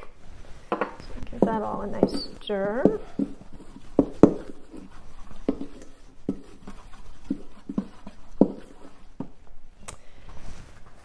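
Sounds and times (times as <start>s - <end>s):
spoon scraping metal bowl: 1.0s - 9.1s.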